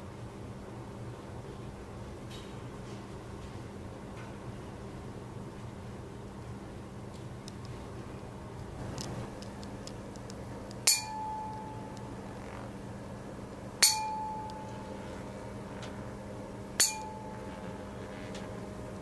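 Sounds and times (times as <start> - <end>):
tuning fork clink and ringing tone: 10.8 - 12.3, 13.8 - 15.2, 16.8 - 17.9.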